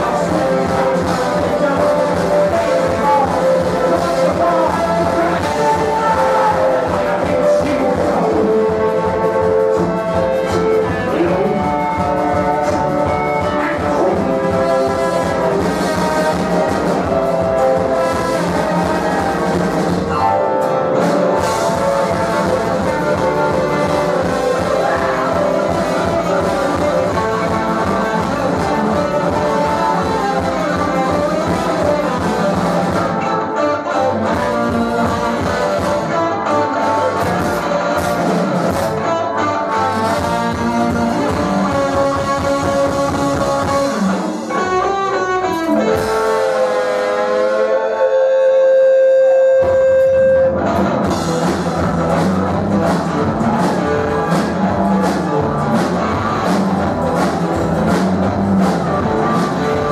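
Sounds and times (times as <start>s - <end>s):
drum beat: 0.0s - 20.2s, 21.0s - 33.2s, 51.0s - 59.9s
bass: 0.0s - 59.9s
brass section: 0.0s - 59.9s
guitar: 0.0s - 59.9s.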